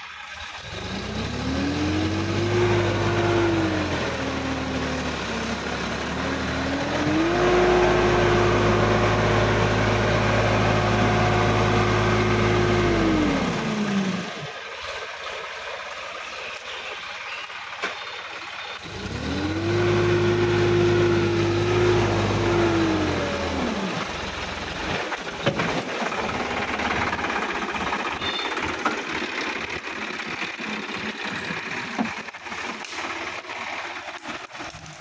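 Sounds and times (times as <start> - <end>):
tractor diesel engine revving: 0.0 - 15.9, 16.5 - 35.0
knocks and rattles: 24.8 - 33.1.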